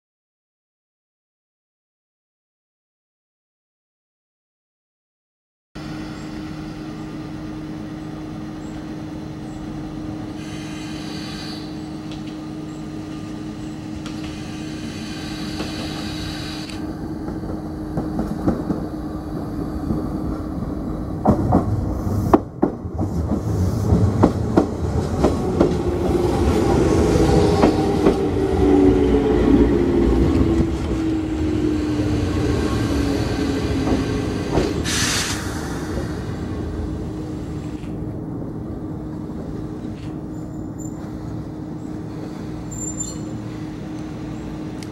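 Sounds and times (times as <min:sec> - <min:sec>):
electric train hum: 0:05.8 - 0:44.9
short hiss: 0:34.8 - 0:36.2.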